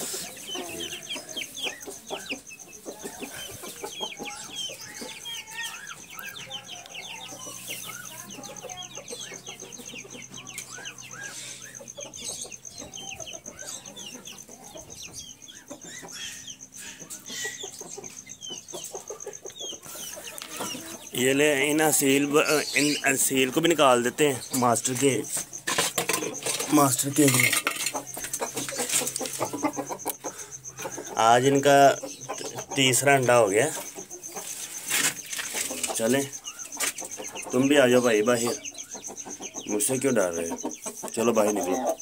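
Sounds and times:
chicken clucking: 0:00.0 - 0:42.0
chicks peeping: 0:00.0 - 0:42.0.

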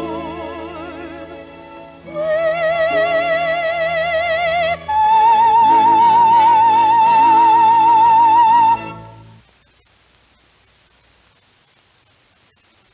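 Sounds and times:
soprano singing operatic: 0:00.0 - 0:09.2
string ensemble: 0:00.0 - 0:09.4.

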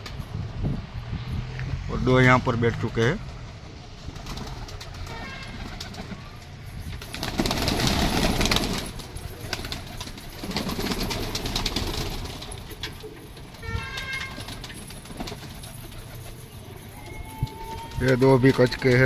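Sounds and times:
pigeon wings flapping: 0:04.0 - 0:19.0.

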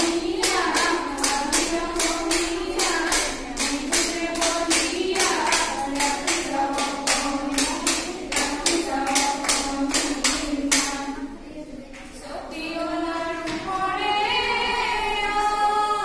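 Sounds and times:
hand clapping: 0:00.0 - 0:11.1
women singing together: 0:00.0 - 0:16.0.

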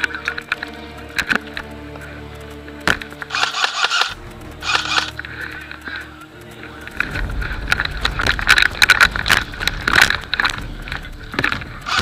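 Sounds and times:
gear clicks and knocks: 0:00.0 - 0:12.0
low wind rumble: 0:00.0 - 0:12.0
footsteps on rubble: 0:06.9 - 0:12.0.

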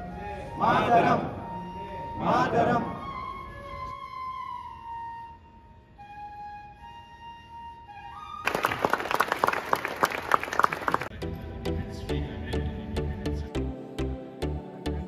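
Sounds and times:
solo flute notes: 0:01.4 - 0:08.6
crowd applauding: 0:08.4 - 0:11.1
rhythmic background music: 0:11.1 - 0:15.0.

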